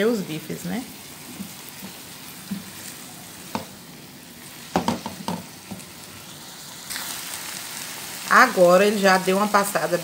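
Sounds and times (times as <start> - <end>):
vegetables sizzling in a frying pan: 0.0 - 10.0
spatula stirring and scraping: 1.0 - 3.8
spatula knocking against pan: 3.5 - 3.7, 4.7 - 5.9.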